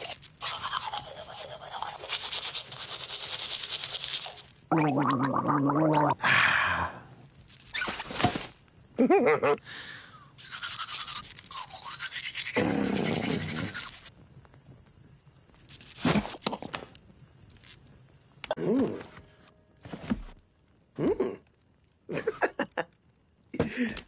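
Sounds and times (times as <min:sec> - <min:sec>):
toothbrush scrubbing teeth: 0:00.0 - 0:04.5, 0:10.4 - 0:14.1
person humming: 0:18.5 - 0:19.2, 0:21.0 - 0:21.4.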